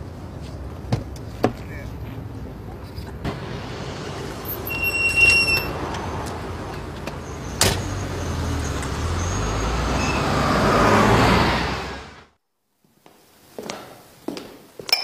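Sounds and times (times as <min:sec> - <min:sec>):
car engine pulling away: 0:03.2 - 0:12.4
high squeal: 0:04.4 - 0:05.9, 0:07.2 - 0:10.5.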